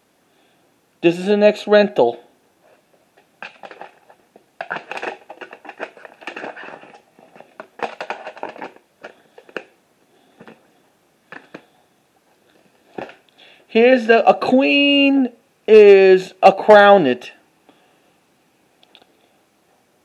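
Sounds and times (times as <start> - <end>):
plastic case rustling and scraping: 2.6 - 10.7, 11.3 - 13.3
plastic case clicks: 3.4 - 9.7.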